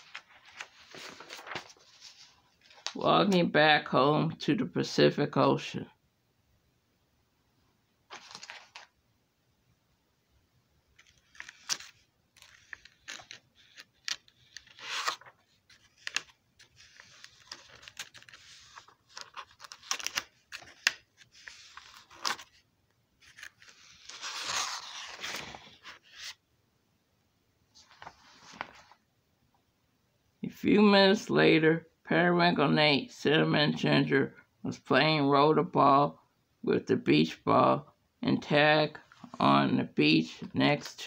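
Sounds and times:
paper pages rustling: 0:00.0 - 0:03.0, 0:08.1 - 0:09.0, 0:10.9 - 0:22.6, 0:23.2 - 0:26.4, 0:27.7 - 0:29.0.

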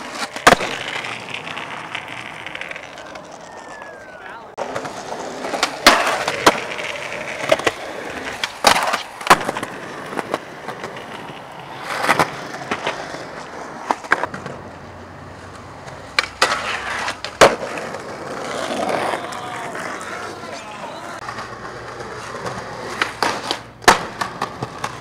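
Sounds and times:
skateboard clacks: 0:00.0 - 0:25.0
skateboard grinding on rail: 0:00.0 - 0:25.0
skateboard wheels rolling on pavement: 0:00.0 - 0:25.0.

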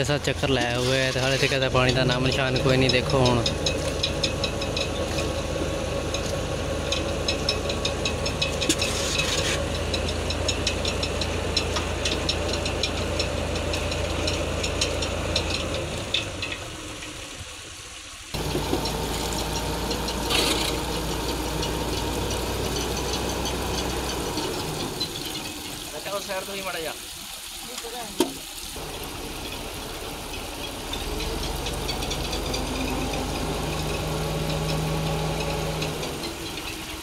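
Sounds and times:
tractor engine running: 0:00.0 - 0:26.2, 0:28.7 - 0:37.0
fast rattling tick: 0:01.6 - 0:17.2.

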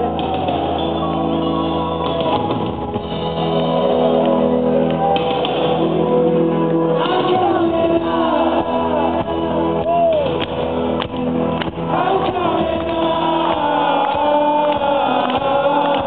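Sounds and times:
live rock band playing: 0:00.0 - 0:16.0
man singing lead vocal: 0:06.0 - 0:10.4, 0:11.8 - 0:16.0.

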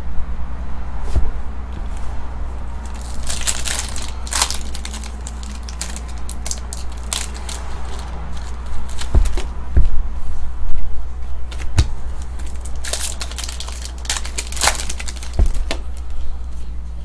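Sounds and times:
steady low hum: 0:00.0 - 0:17.0
foil wrapper crinkling: 0:02.8 - 0:09.2, 0:12.2 - 0:16.2.

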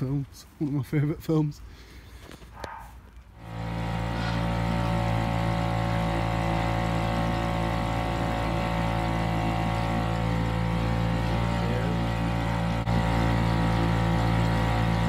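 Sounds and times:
outboard motor running: 0:03.4 - 0:15.0.

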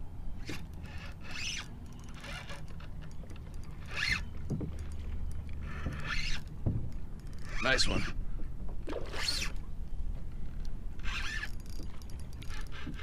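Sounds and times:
wind and water rumble: 0:00.0 - 0:13.0
fishing reel rasping: 0:00.4 - 0:06.6, 0:07.2 - 0:08.2, 0:09.0 - 0:09.6, 0:10.6 - 0:13.0.

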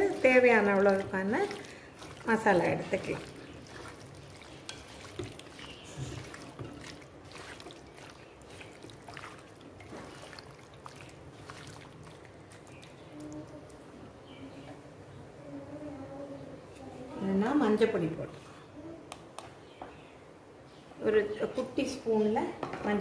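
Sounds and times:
hands kneading wet chicken: 0:00.0 - 0:13.8.

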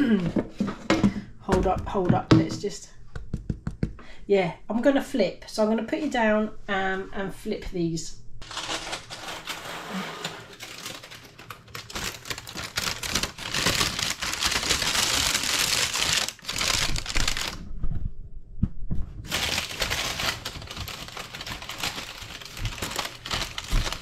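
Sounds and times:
baking parchment crinkling: 0:08.4 - 0:17.6, 0:19.2 - 0:24.0.

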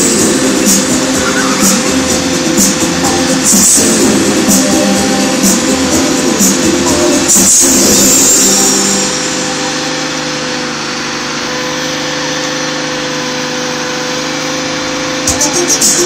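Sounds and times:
loud rushing noise: 0:00.0 - 0:11.7
fairground ride machinery humming: 0:00.0 - 0:16.0.

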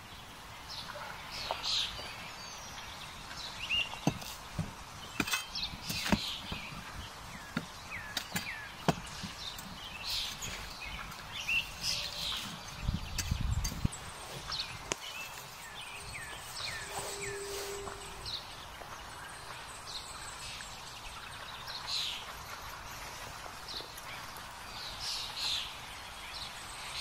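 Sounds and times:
birds chirping: 0:00.0 - 0:27.0
shovel knocking burning logs: 0:03.4 - 0:15.1.

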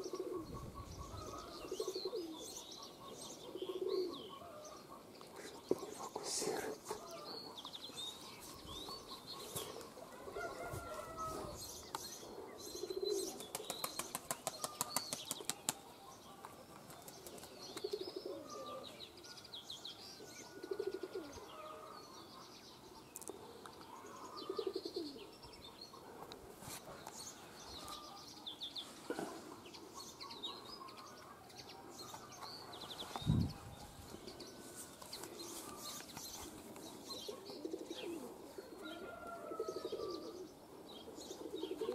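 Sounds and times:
pigeons cooing: 0:00.0 - 0:14.9, 0:16.3 - 0:19.0, 0:20.3 - 0:22.0, 0:23.5 - 0:41.9
small birds chirping: 0:00.0 - 0:41.9
wings flapping: 0:13.4 - 0:15.8.

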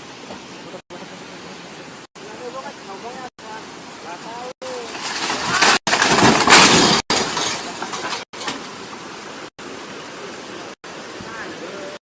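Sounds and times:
steady rushing hiss: 0:00.0 - 0:05.6
crash of splintering timber and metal: 0:04.8 - 0:08.8.

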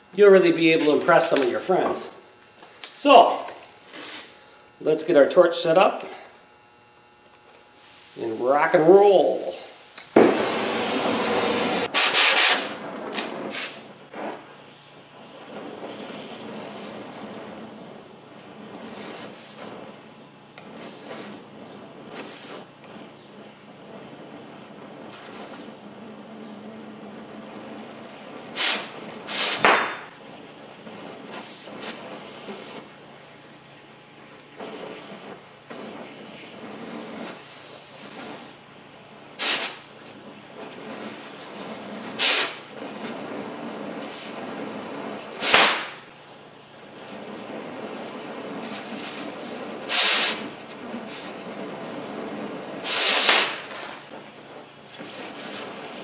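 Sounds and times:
cutting torch flame hissing: 0:00.0 - 0:56.0
sharp oxygen hisses: 0:07.7 - 0:12.8, 0:18.9 - 0:19.8, 0:20.8 - 0:21.5, 0:22.1 - 0:22.7, 0:25.2 - 0:25.8, 0:28.5 - 0:29.8, 0:36.8 - 0:38.6, 0:39.4 - 0:39.8, 0:40.8 - 0:43.1, 0:49.9 - 0:50.5, 0:52.8 - 0:54.2.

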